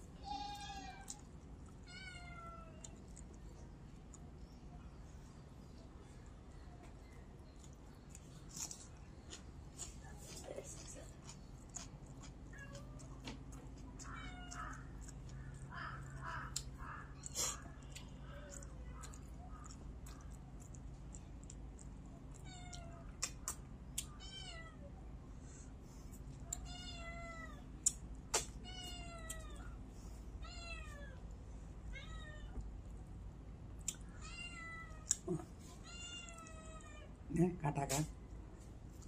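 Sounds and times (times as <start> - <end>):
cat meowing: 14.0 - 15.0, 26.6 - 27.6.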